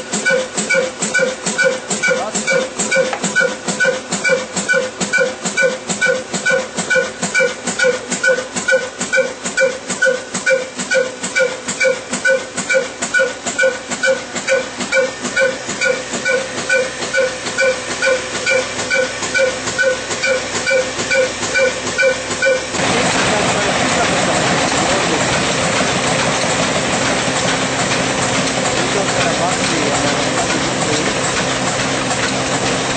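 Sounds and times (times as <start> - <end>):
diesel engine chuffing: 0.0 - 32.9.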